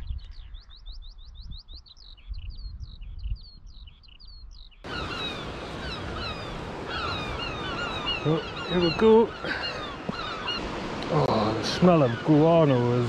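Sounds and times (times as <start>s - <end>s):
wind rumble on microphone: 0.0s - 8.7s
skylark singing: 0.0s - 13.0s
falling bird calls: 0.2s - 13.0s.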